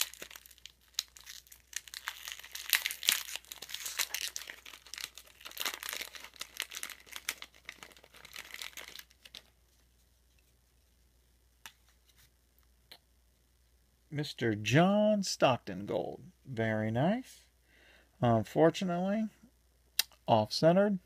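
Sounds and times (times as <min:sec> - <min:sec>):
plastic wrapper crinkling: 0:00.0 - 0:10.6.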